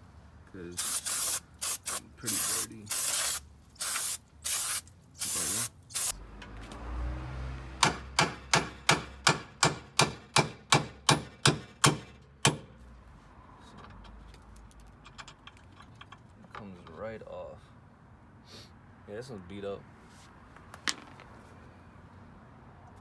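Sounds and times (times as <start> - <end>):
aerosol spray hissing: 0.8 - 6.2.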